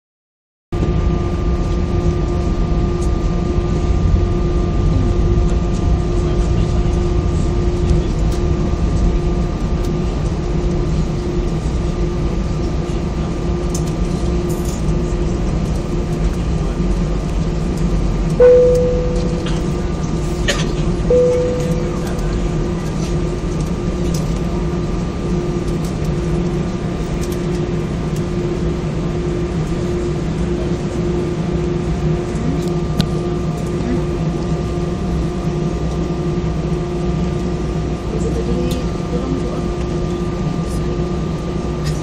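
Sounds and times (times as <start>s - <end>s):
jet engines rumbling in cabin: 0.8s - 42.0s
cabin chime: 18.4s - 19.7s, 21.1s - 22.1s.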